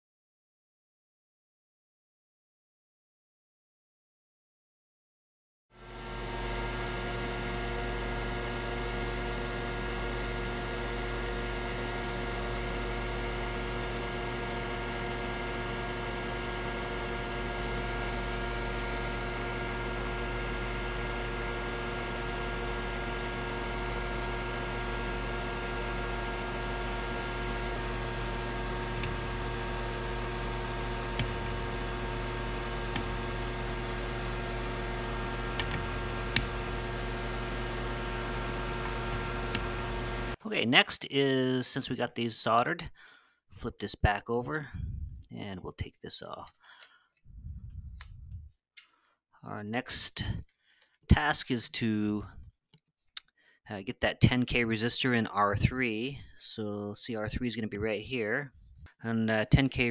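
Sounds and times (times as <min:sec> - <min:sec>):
electrical hum: 0:05.8 - 0:42.8, 0:43.6 - 0:48.6.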